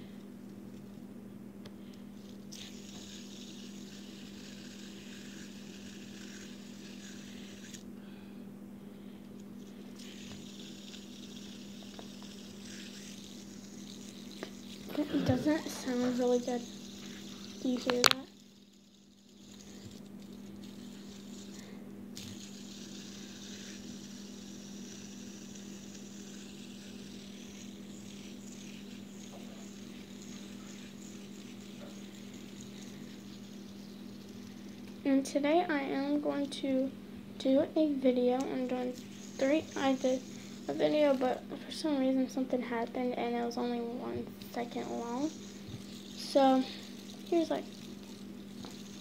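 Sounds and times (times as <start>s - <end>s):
fidget spinner whirring: 1.8s - 8.2s, 9.2s - 49.0s
fidget spinner stopping click: 16.2s - 18.4s.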